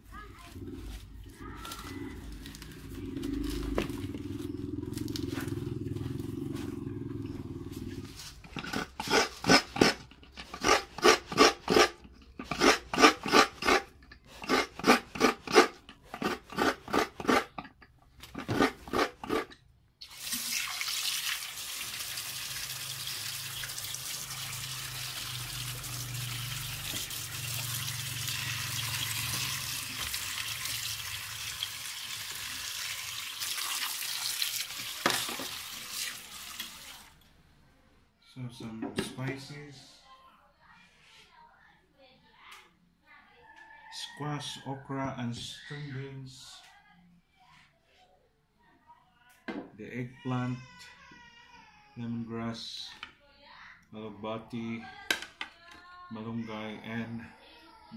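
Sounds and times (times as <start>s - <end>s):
tap water running into basin: 20.0s - 37.2s.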